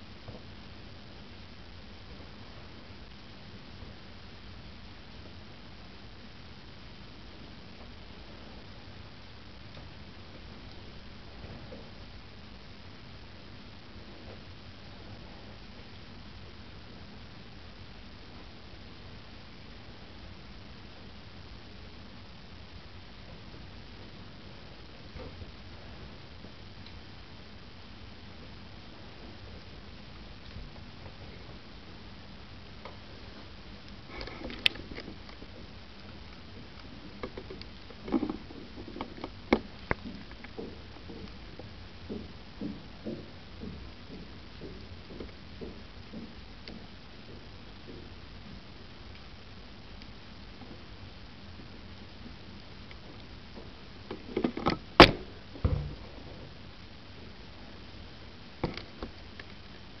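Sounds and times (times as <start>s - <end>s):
steady hiss: 0.0s - 60.0s
sharp clicks and knocks: 54.1s - 56.1s
dull thud: 55.0s - 56.2s.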